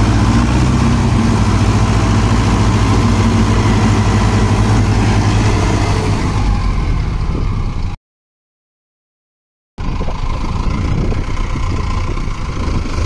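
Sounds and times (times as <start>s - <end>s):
tractor diesel engine rumble: 0.0s - 8.0s, 9.8s - 13.0s.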